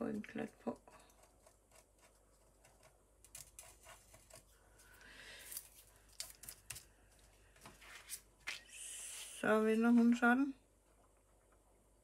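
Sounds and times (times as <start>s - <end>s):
paper and card rustling: 3.3s - 8.7s.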